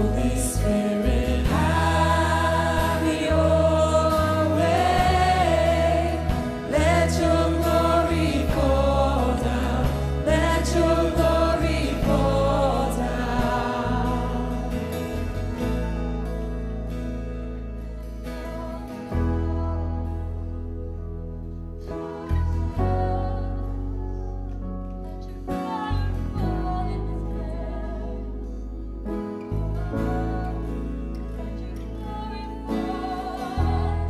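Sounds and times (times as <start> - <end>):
voices singing together: 0.0 - 15.8, 21.8 - 24.6, 29.4 - 34.0
band with acoustic guitar: 0.0 - 34.0.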